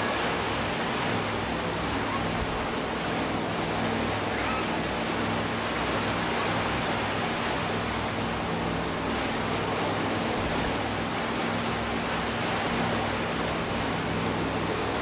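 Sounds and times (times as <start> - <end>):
boat engines droning: 0.0 - 15.0
water rushing along boat hull: 0.0 - 15.0.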